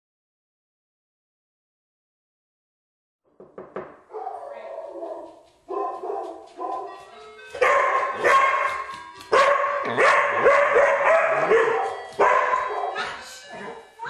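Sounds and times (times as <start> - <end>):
dog barking and yowling: 4.1 - 7.0, 7.6 - 13.3.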